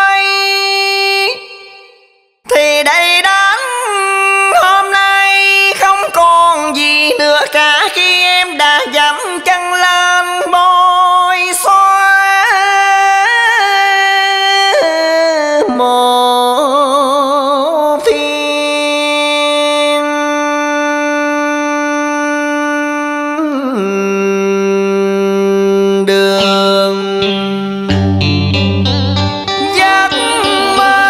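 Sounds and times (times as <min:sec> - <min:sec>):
melodic line with long held notes: 0:27.2 - 0:31.0.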